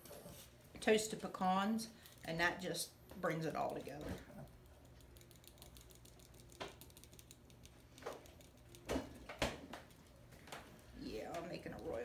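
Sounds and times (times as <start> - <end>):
whisk stirring in glass bowl: 3.8 - 8.9.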